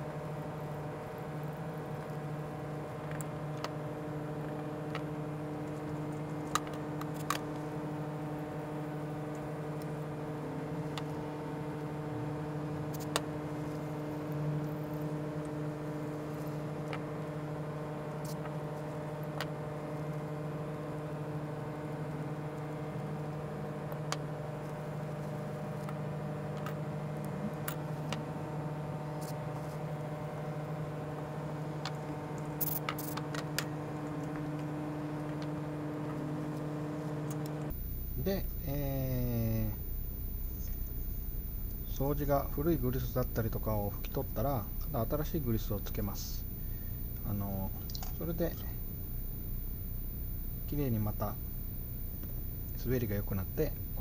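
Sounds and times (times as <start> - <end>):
steady equipment hum: 0.0 - 54.0.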